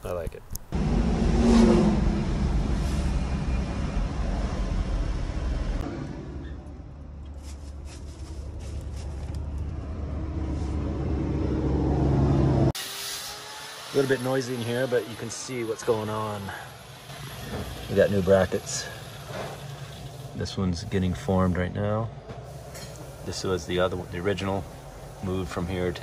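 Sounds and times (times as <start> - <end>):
vehicle engine running: 0.7 - 12.8.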